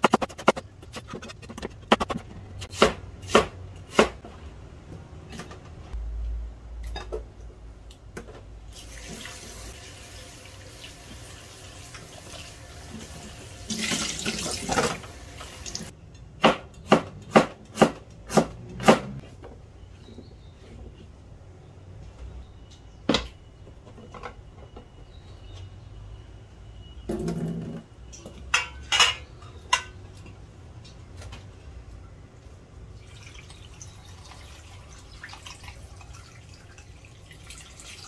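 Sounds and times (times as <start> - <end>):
vegetables rinsed by hand: 8.7 - 15.9.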